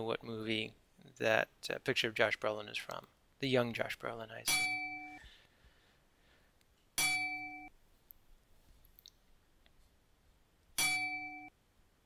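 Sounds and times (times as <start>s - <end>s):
electronic bell-like chime: 7.0s - 7.7s, 10.8s - 11.5s.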